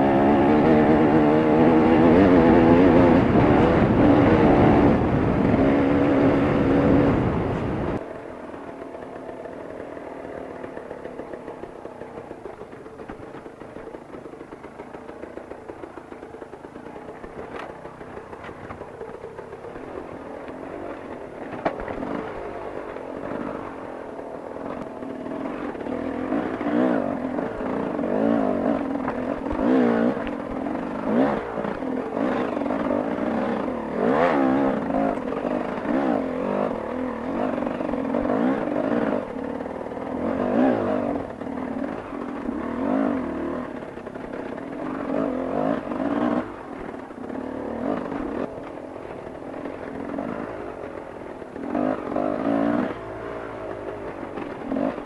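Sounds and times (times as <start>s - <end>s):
dirt bike engine revving: 0.0s - 55.0s
bike knocking on stones: 17.0s - 23.2s.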